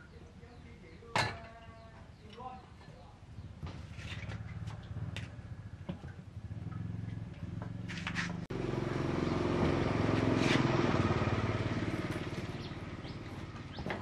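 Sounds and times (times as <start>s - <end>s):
motorcycle engine running: 4.4s - 14.0s.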